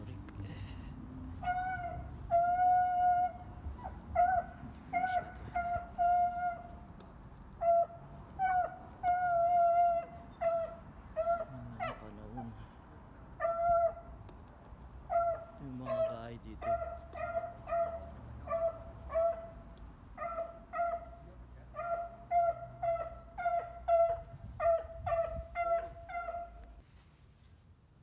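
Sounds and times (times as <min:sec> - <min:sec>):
dog whining: 0:15.1 - 0:19.6, 0:21.8 - 0:26.6.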